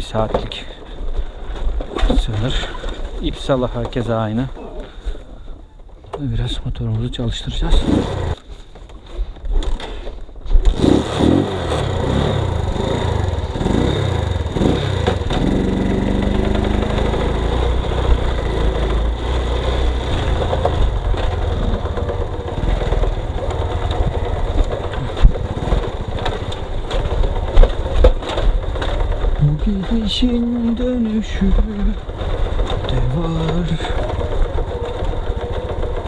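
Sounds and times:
motorcycle engine revving and idling: 7.6s - 8.4s, 10.6s - 36.0s.

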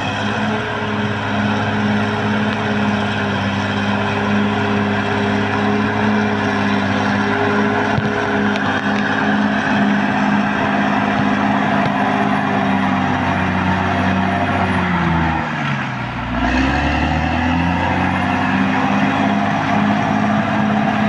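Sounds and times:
clatter of tracks: 0.0s - 15.8s
bulldozer diesel engine running: 0.0s - 21.0s.

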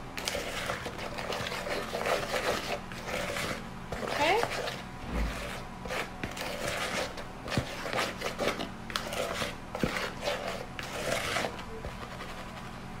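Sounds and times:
spatula scraping steel bowl: 0.2s - 12.7s.

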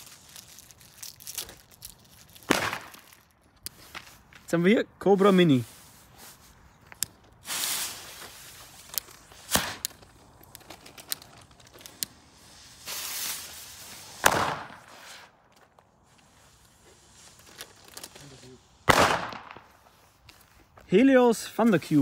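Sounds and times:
firecracker bangs: 2.5s - 3.0s, 14.1s - 15.0s, 18.8s - 19.8s
firecracker hiss: 7.4s - 10.0s, 11.8s - 15.3s.

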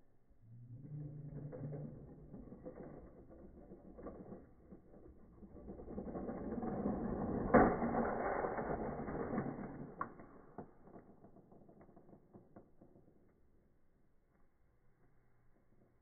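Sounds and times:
toy trains crashing clatter: 3.2s - 12.3s.

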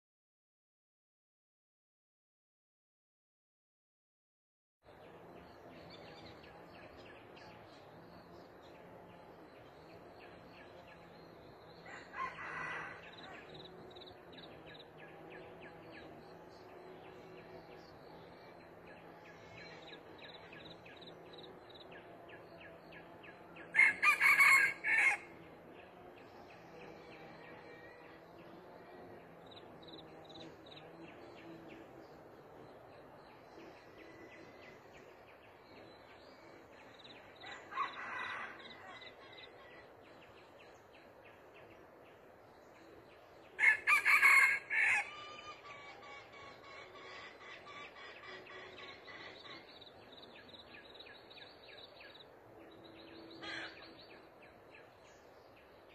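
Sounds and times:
rooster crowing: 11.8s - 13.6s, 23.7s - 25.3s, 37.4s - 39.5s, 43.6s - 46.0s
distant rooster crow: 11.8s - 13.7s, 23.7s - 25.4s, 37.4s - 39.9s, 43.6s - 46.4s.

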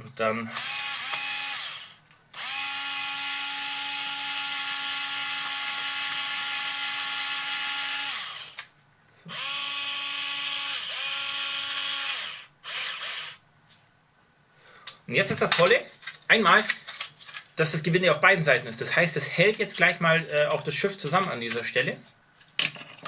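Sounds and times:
cordless screwdriver motor whining: 0.5s - 8.7s, 9.3s - 13.4s.

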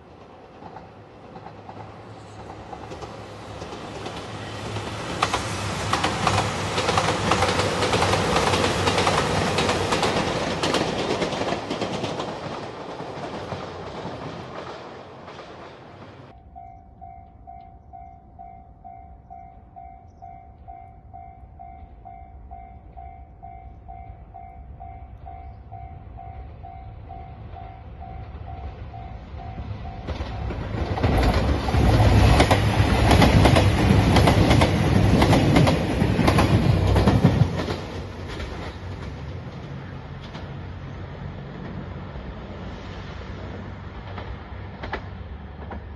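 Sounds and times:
train wheel clatter: 0.0s - 16.4s, 27.5s - 40.8s, 44.0s - 45.9s
diesel train engine rumble: 0.0s - 45.9s
passing train noise: 0.0s - 45.9s
level-crossing bell ringing: 16.3s - 30.6s.

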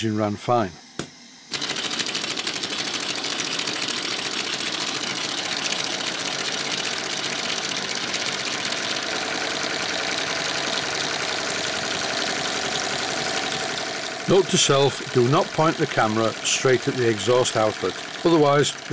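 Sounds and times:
model steam engine running fast: 1.5s - 18.9s.

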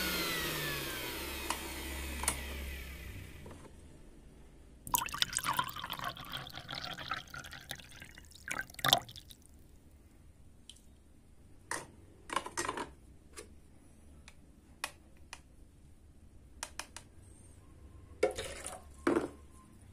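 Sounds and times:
liquid pouring into a paper cup: 4.9s - 9.5s.

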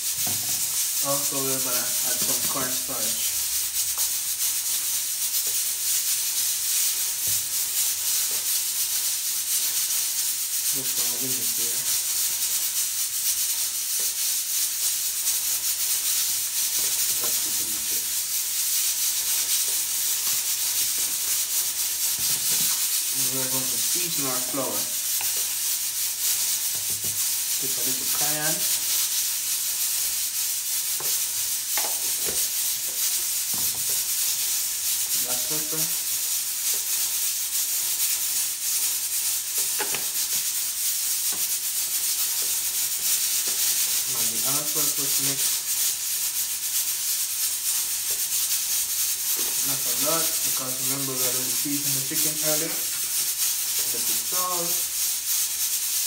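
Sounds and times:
pepper shaker rattling: 0.0s - 56.0s
steady high hiss: 0.0s - 56.0s.

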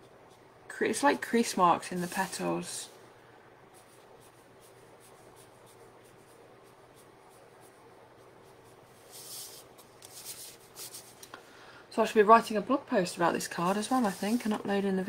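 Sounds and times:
brush tip scratching on paper: 1.9s - 2.5s, 3.8s - 11.2s, 13.5s - 14.7s.

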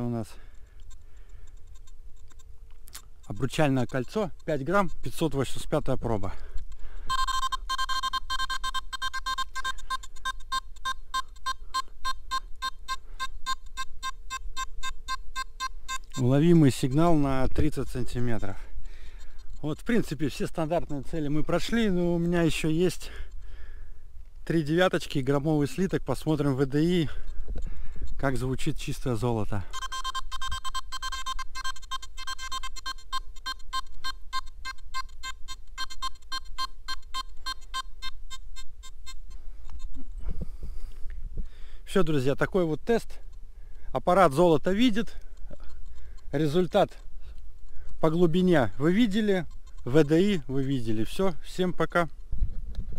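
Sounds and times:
metal detector short beeps: 3.2s - 5.7s, 7.0s - 17.1s, 27.6s - 39.9s, 48.0s - 51.2s.

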